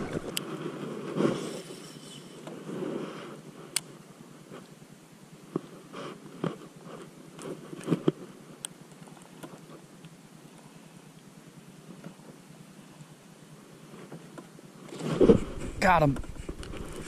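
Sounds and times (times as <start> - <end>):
crunchy rustles in plastic kayak: 5.5 - 10.8, 13.7 - 17.0.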